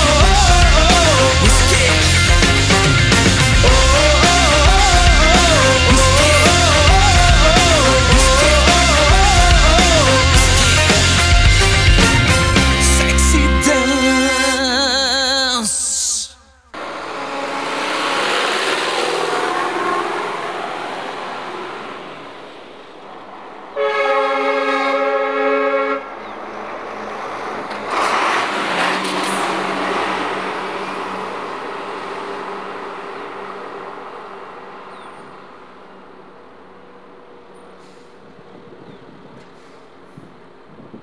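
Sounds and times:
vehicle horn blast: 13.5 - 14.9, 16.5 - 20.8, 23.7 - 26.1
minibus engine driving past: 16.8 - 38.8.

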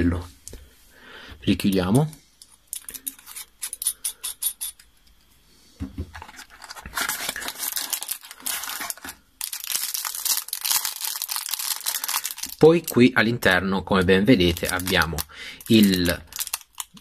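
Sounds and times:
plastic bag crinkling: 6.1 - 13.3, 14.0 - 17.0.

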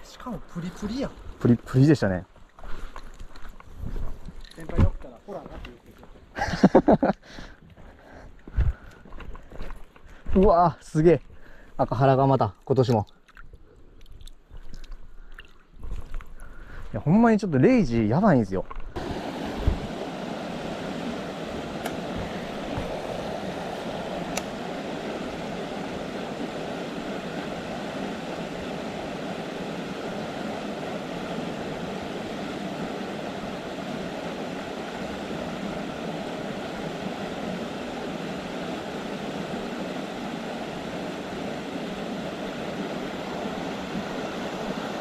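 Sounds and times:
stream water rushing: 17.0 - 45.0
faint click: 24.3 - 24.5.

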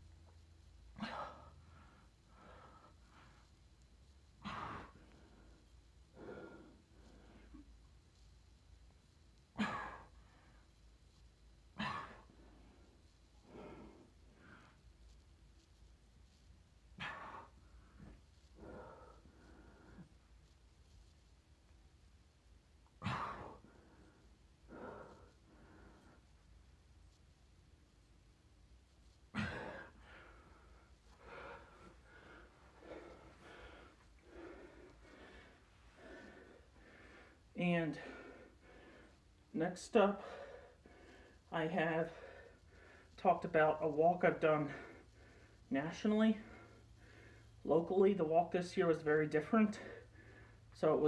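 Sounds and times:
man breathing hard: 4.4 - 7.6, 17.0 - 20.2, 23.0 - 26.2, 29.4 - 39.3, 49.8 - 50.8.

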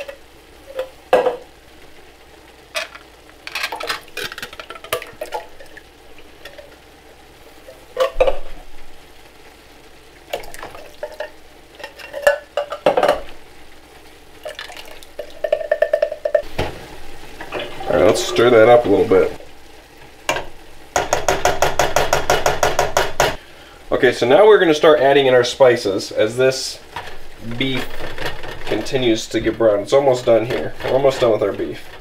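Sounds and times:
cans and spoon clinking on pan: 0.0 - 1.5, 2.7 - 5.8, 10.4 - 13.3, 15.2 - 16.5
food sizzling: 0.0 - 32.0.

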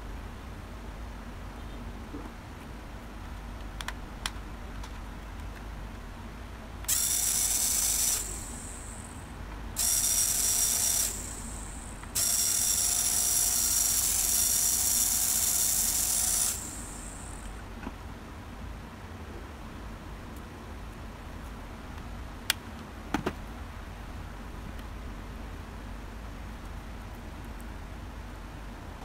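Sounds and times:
high-pitched toy motor gear whir: 6.9 - 9.2, 9.8 - 17.5.

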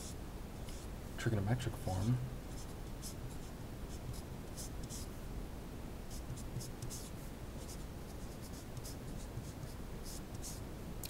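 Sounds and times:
marker scratching on paper: 0.0 - 0.9, 2.5 - 5.1, 6.1 - 10.6.

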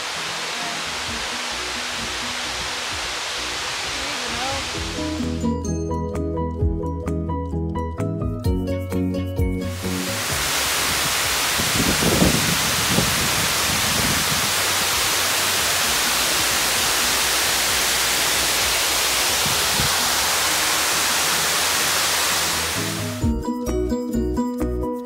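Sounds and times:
floodwater pouring down stone spillway: 0.0 - 5.3, 9.8 - 23.2.

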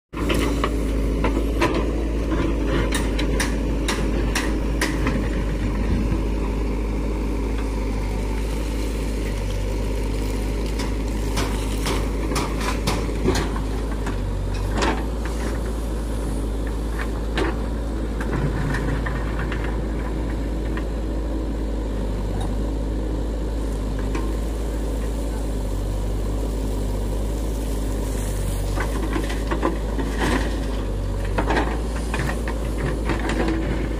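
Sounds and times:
diesel engine running: 0.1 - 33.9.

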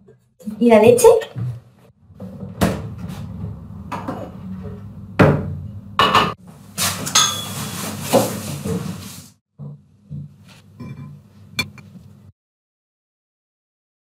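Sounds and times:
crockery clattering: 7.0 - 8.3.

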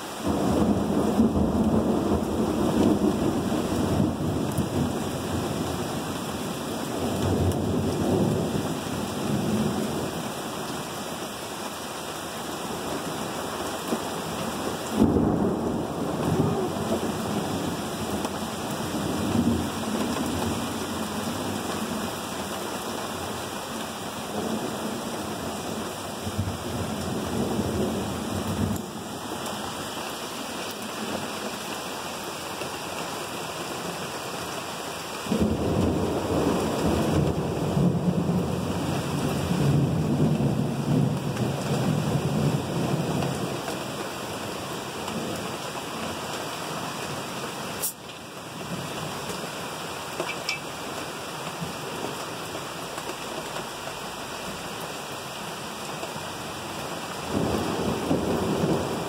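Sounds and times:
heavy rain on a camper: 0.0 - 59.0
rolling thunder: 0.2 - 5.9, 14.9 - 22.1, 35.3 - 43.4, 57.3 - 59.0.

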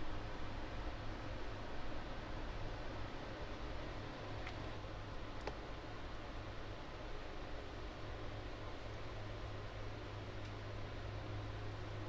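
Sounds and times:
low hiss and hum: 0.0 - 12.0
faint light ticks: 10.4 - 10.6.

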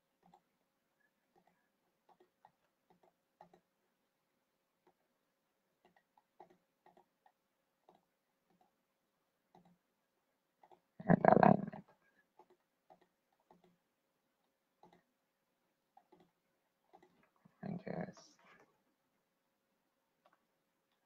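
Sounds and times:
computer mouse clicks: 1.3 - 3.7, 5.8 - 8.8, 9.5 - 9.8, 10.6 - 10.9, 12.2 - 13.8, 14.8 - 15.1, 15.9 - 18.8.

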